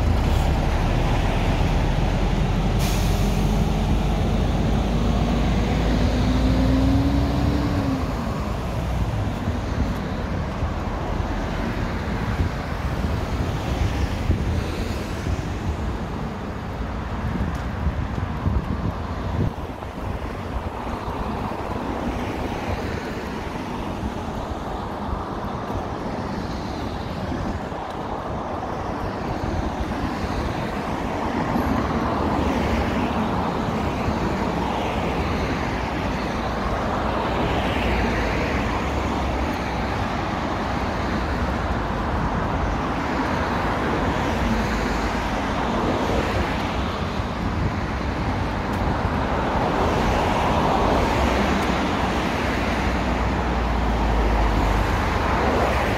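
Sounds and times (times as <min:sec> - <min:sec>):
cars going by: 0:00.0 - 0:55.9.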